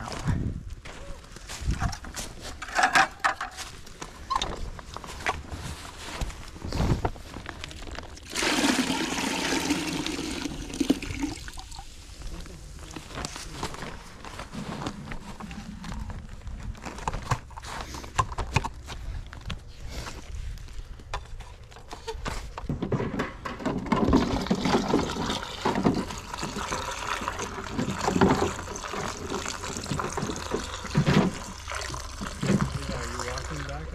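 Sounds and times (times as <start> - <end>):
knocks and rustles of handling: 0.8 - 8.2, 12.2 - 26.1
sap pouring into plastic tank: 8.2 - 11.9, 24.0 - 33.7.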